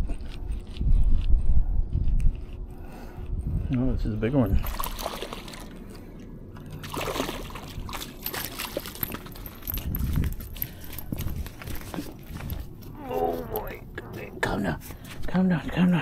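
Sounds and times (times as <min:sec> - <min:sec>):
fish splashing in water: 0:04.6 - 0:05.9, 0:06.7 - 0:09.7.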